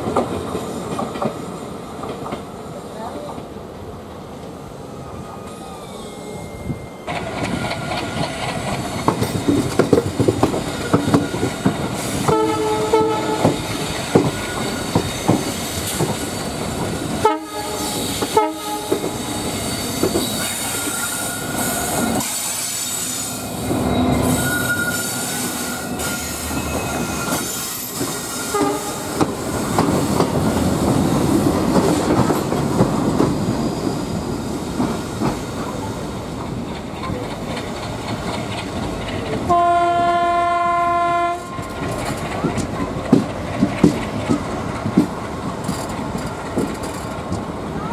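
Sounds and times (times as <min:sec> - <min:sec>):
train wheels clattering over rail joints: 0:00.0 - 0:02.6, 0:07.1 - 0:40.0, 0:41.3 - 0:47.7
wheel squeal: 0:05.5 - 0:08.0, 0:10.7 - 0:12.2, 0:19.3 - 0:28.8
locomotive horn honks: 0:12.3 - 0:13.6, 0:17.2 - 0:19.0, 0:39.5 - 0:41.6.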